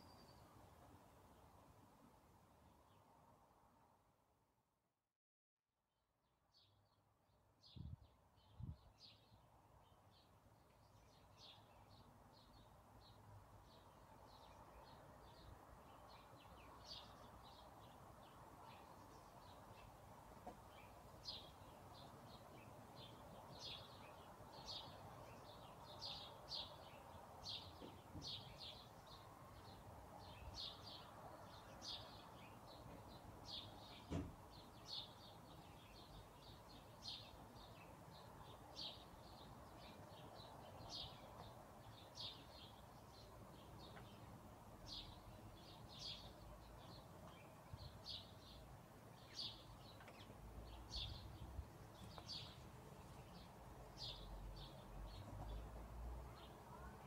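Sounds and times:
songbirds chirping: 0.0s - 4.0s, 6.4s - 57.0s.

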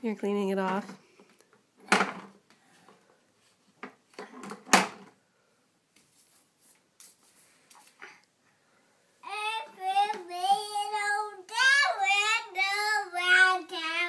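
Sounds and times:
brush rubbing on paper: 6.1s - 8.0s.

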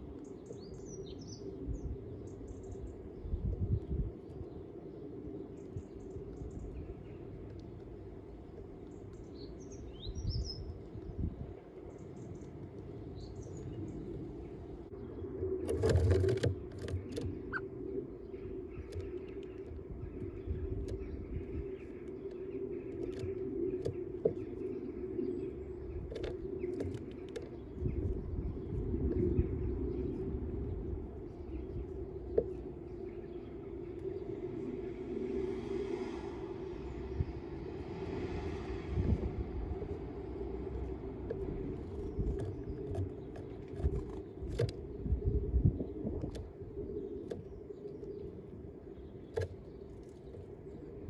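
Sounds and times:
small birds chirping: 0.0s - 51.0s
low engine drone: 12.8s - 51.0s.

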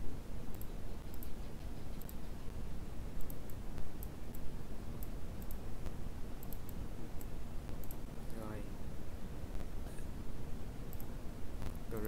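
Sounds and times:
low background hum: 0.0s - 12.0s
computer mouse clicking: 0.5s - 2.4s, 3.2s - 8.1s, 10.9s - 11.8s.

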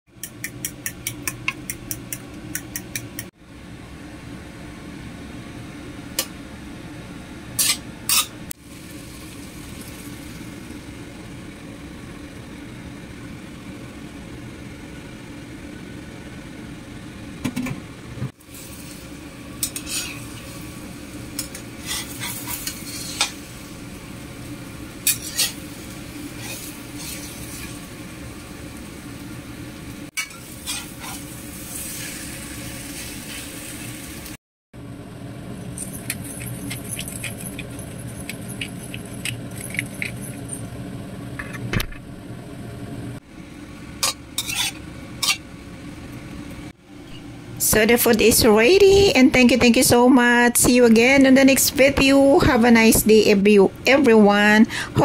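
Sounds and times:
food sizzling in a wok: 7.6s - 11.4s, 18.4s - 34.4s, 44.0s - 45.4s
metal spatula scraping pan: 19.6s - 20.4s, 21.4s - 23.4s, 25.0s - 25.6s, 26.4s - 27.7s, 30.2s - 31.3s, 44.0s - 45.4s
spoon whisking eggs in bowl: 35.9s - 40.5s.

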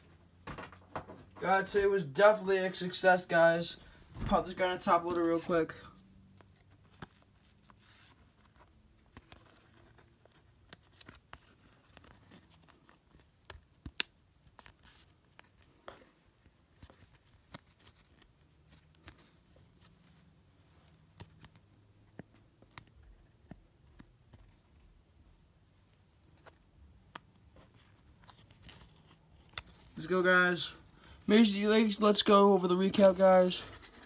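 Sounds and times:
card scraping against plastic: 27.3s - 30.0s, 32.8s - 34.0s.

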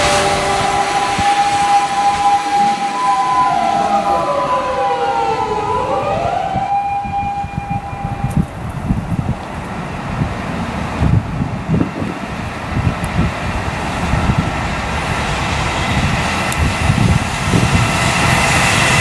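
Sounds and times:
train whining tones: 0.0s - 9.3s, 13.1s - 19.0s
rumble of freight wagons: 0.0s - 19.0s.

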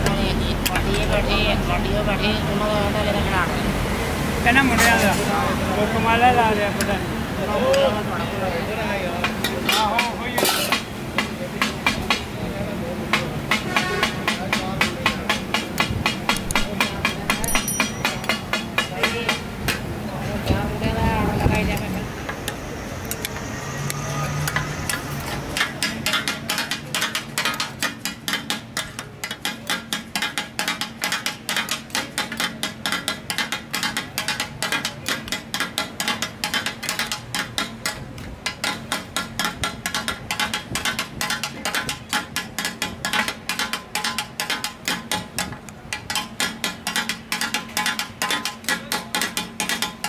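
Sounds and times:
spatulas rapping on iron griddle: 25.5s - 50.0s.

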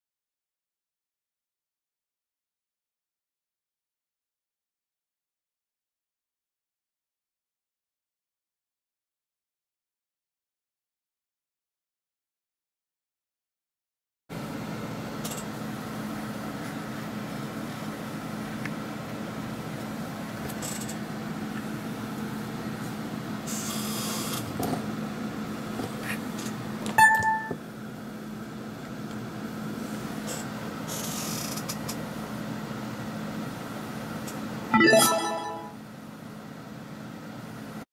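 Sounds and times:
low electrical hum: 14.3s - 37.8s
short electronic beep: 27.0s - 27.6s, 34.7s - 35.8s.

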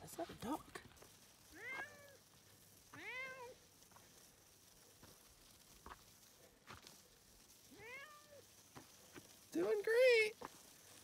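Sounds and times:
cat meowing: 1.6s - 2.2s, 3.0s - 3.6s, 7.8s - 8.4s.

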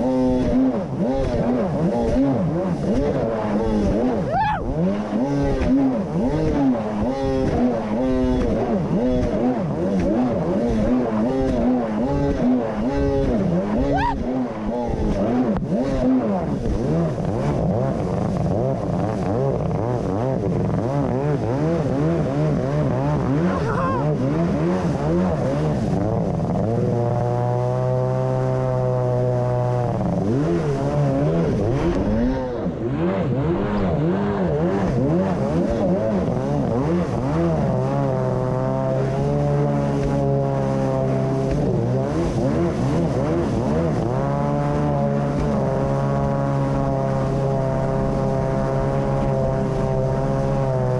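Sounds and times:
jet ski engine running hard: 0.0s - 50.9s.

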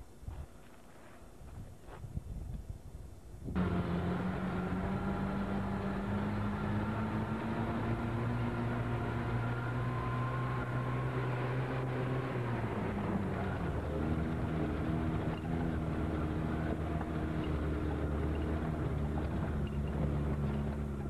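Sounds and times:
vehicle engine droning: 3.5s - 21.0s.

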